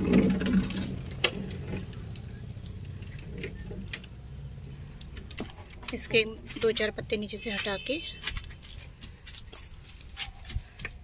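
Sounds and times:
hand rustling soil: 8.4s - 11.0s.

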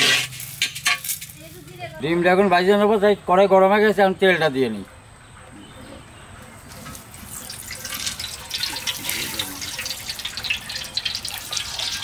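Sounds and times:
oil pouring and splashing: 6.7s - 12.0s.

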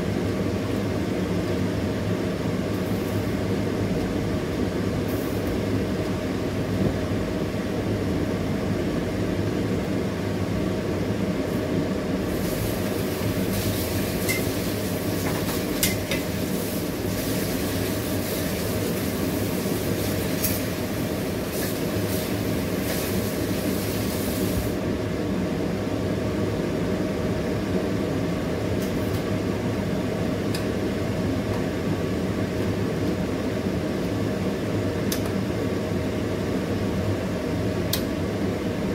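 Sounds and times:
kitchen fan humming: 0.0s - 38.9s
hiss: 12.3s - 15.4s, 16.2s - 24.8s.

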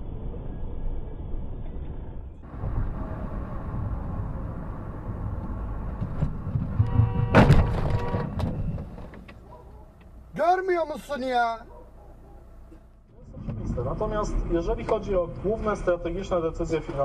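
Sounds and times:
car road noise: 0.0s - 17.0s
sharp knocks: 6.0s - 9.2s
car horn: 6.5s - 8.9s.

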